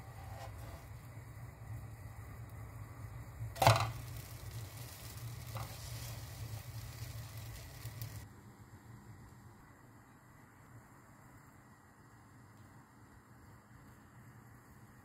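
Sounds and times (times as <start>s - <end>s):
dosa sizzling in pan: 0.0s - 8.3s.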